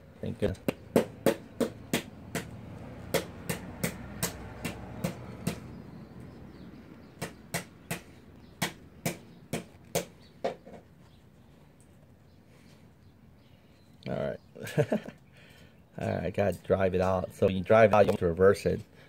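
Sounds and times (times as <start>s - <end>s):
sharp rhythmic knocks: 0.6s - 5.8s, 7.1s - 10.8s.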